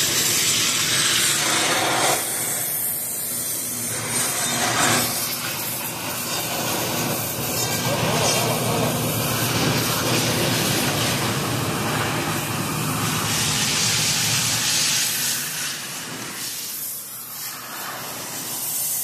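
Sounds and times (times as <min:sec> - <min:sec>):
loud hissing rush: 0:00.0 - 0:19.0.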